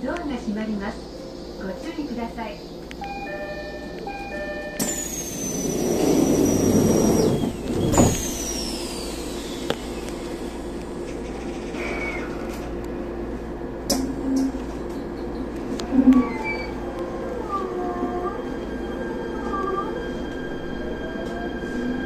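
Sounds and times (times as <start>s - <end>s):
train humming: 0.0s - 22.0s
train doors thudding shut: 4.7s - 8.6s
compressed air rush with whistles: 5.0s - 10.0s.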